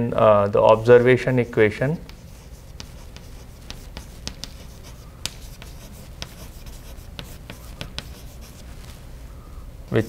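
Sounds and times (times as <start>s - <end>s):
chalk tapping on blackboard: 2.0s - 8.7s.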